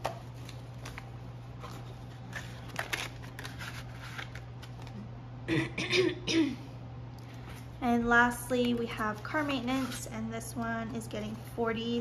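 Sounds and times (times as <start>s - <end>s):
paper banknotes rustling: 0.0s - 5.0s
throat clearing: 5.5s - 6.6s.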